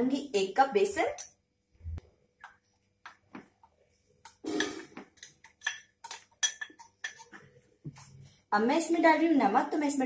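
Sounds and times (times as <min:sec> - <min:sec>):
spoon clinking on containers: 0:05.1 - 0:07.5.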